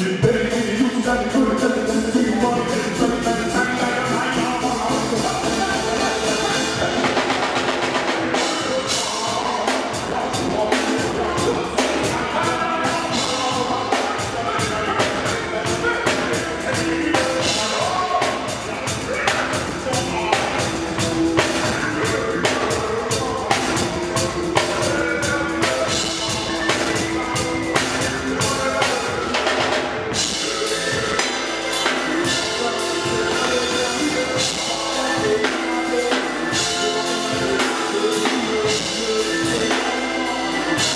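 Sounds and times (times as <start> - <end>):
drum kit beat: 0.0 - 40.9
keyboard chords: 0.0 - 40.9.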